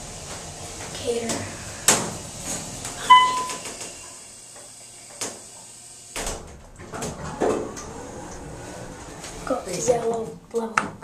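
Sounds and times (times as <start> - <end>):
elevator door mechanism rumbling: 0.0 - 4.3, 6.2 - 10.5
elevator door thud: 1.3 - 4.0
elevator door click: 2.5 - 4.0.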